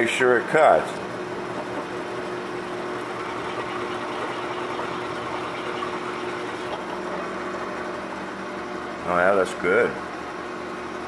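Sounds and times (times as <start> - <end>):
drill press humming: 0.8 - 8.8.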